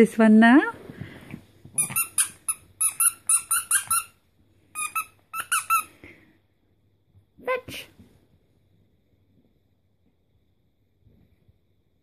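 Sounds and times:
squeaky dog toy squeaking: 1.8s - 5.9s.

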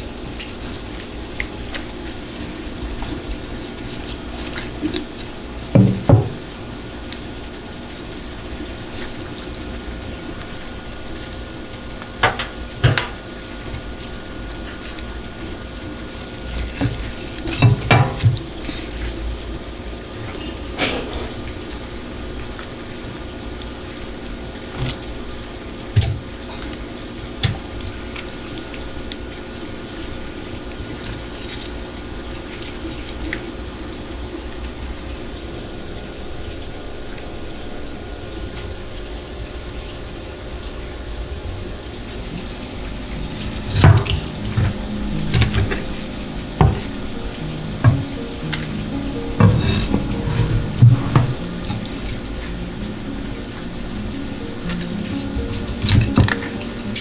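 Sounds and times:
tap water running into sink: 4.7s - 18.6s, 41.9s - 57.0s
wet fish knocking against sink: 47.8s - 48.2s.

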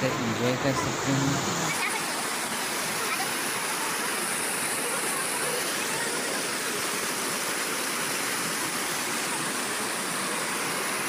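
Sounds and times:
waterfall rushing over rocks: 0.0s - 11.0s.

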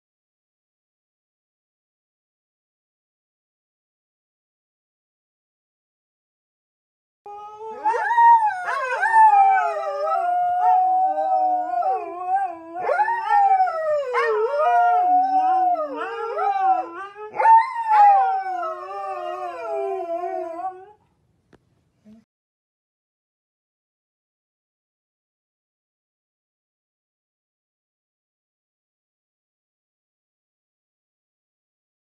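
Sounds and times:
husky howling: 7.3s - 21.0s.

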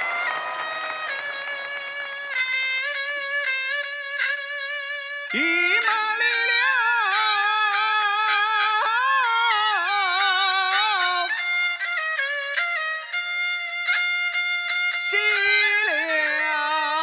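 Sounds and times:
fiddle accompaniment: 1.1s - 17.0s
high opera singing voice: 5.3s - 8.0s.

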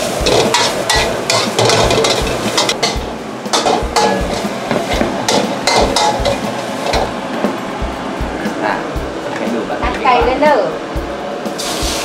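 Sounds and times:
paste sizzling in oil: 0.0s - 7.2s, 11.6s - 12.0s.

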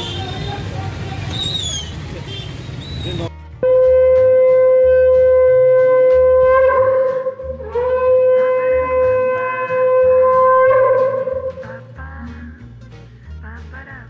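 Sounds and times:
conch shell blasts: 3.6s - 11.8s.

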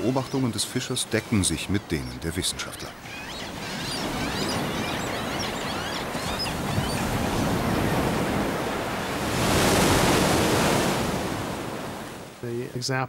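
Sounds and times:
rough sea churning: 0.0s - 12.7s
faint seabird calls: 2.4s - 9.6s
strong wind: 4.0s - 12.4s.

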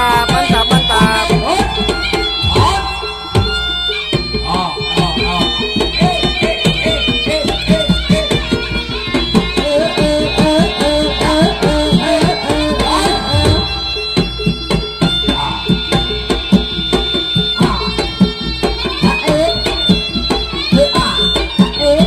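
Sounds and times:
reedy wind melody: 0.0s - 5.8s, 8.6s - 16.3s
drums beating fast rhythm: 0.0s - 22.0s.

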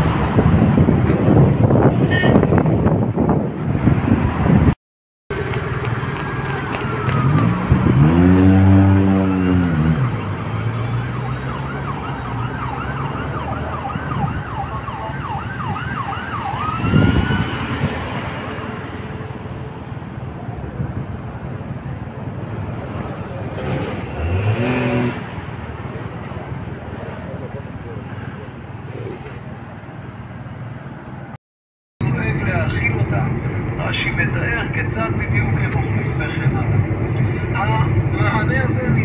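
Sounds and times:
street traffic: 0.0s - 31.4s, 32.0s - 39.0s
siren wailing: 6.0s - 18.1s.

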